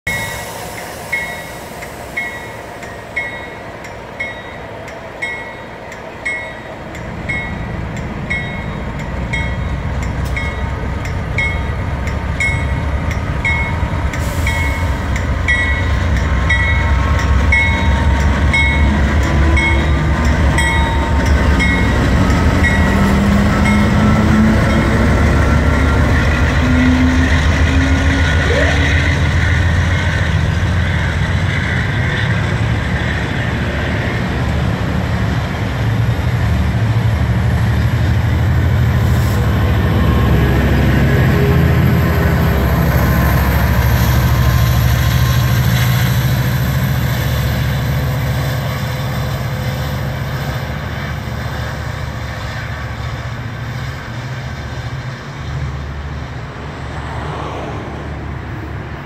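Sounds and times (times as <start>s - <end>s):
locomotive bell ringing: 0.1s - 32.1s.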